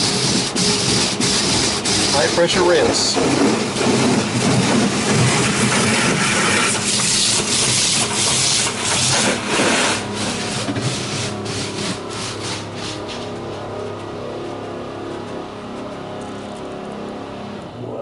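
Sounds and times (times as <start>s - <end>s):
water spraying on car: 0.0s - 13.1s
wash brushes rubbing on glass: 0.0s - 13.7s.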